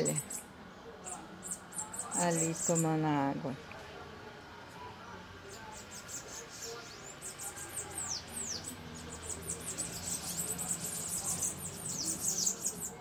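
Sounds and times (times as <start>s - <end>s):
hummingbirds chittering: 0.0s - 13.0s.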